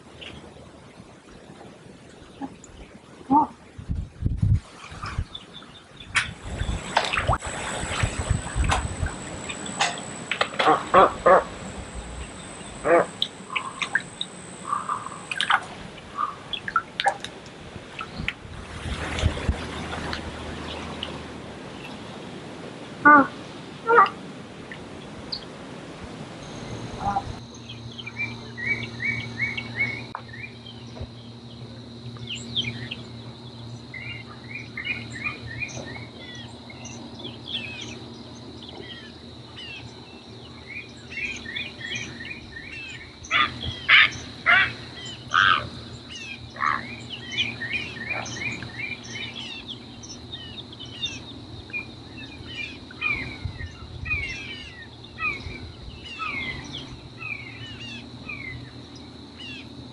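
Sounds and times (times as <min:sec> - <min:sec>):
low steady hum: 0:00.0 - 0:59.9
birds chirping: 0:05.2 - 0:16.8, 0:26.4 - 0:59.8
high-pitched drone: 0:06.4 - 0:16.6
frogs calling: 0:06.6 - 0:17.2, 0:23.0 - 0:24.2, 0:26.4 - 0:59.9.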